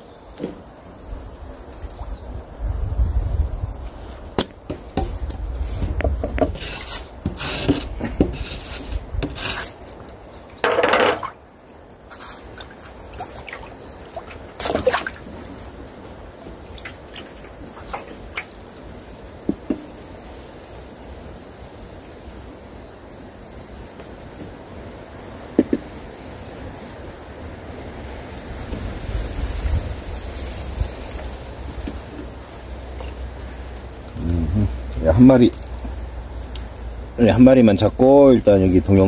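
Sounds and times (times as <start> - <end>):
wet rustles and splashes: 11.2 - 21.6, 27.9 - 39.0.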